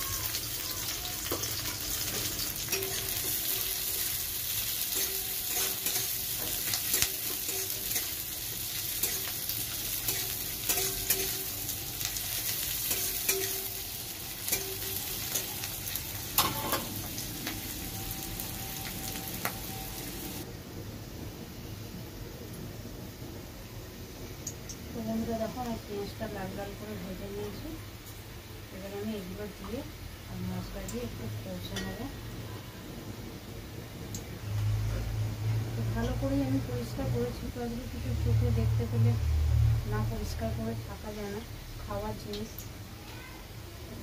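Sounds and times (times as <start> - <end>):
onions sizzling in hot oil: 0.0 - 44.0
metal spatula clicking against pan: 12.9 - 13.7.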